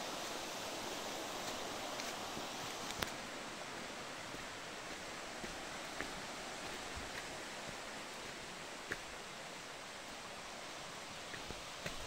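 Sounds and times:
forest trail ambience hiss: 0.0 - 12.0.

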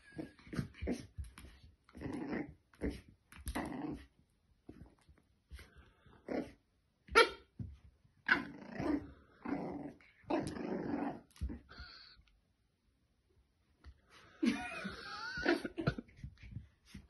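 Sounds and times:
puppy barking and growling: 8.2 - 11.6.

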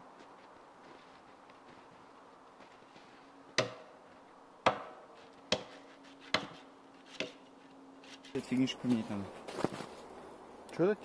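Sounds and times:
axe chopping log: 3.6 - 4.0, 4.6 - 7.4.

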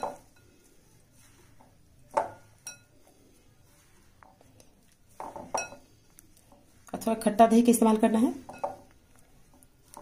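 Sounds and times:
hand mixing dough in bowl: 0.0 - 10.0.

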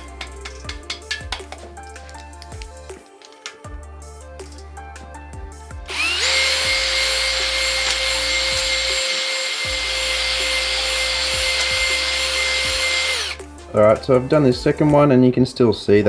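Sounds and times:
cordless drill whine: 5.9 - 13.4.

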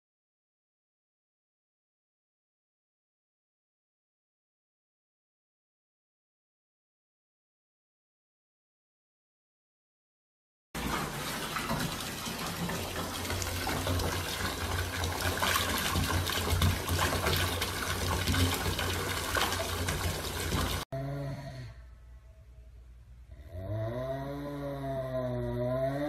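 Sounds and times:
tap water pouring into bathtub: 10.8 - 20.9.

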